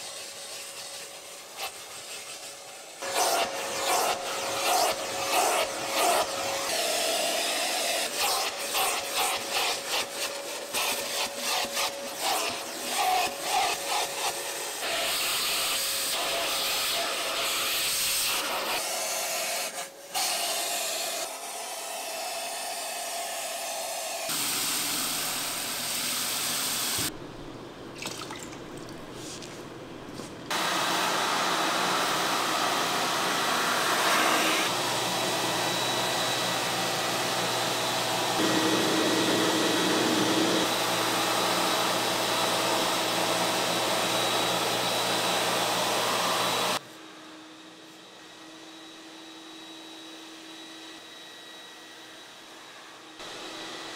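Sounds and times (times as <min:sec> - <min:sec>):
carpet cleaner hissing and rubbing: 0:00.0 - 0:27.1, 0:30.2 - 0:47.2
liquid pouring into tank: 0:28.0 - 0:29.2.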